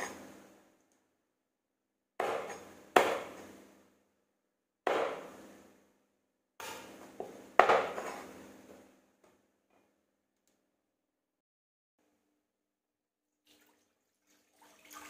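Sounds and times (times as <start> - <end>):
cleaver chopping on cutting board: 2.2 - 3.4, 4.9 - 5.3, 6.6 - 8.2.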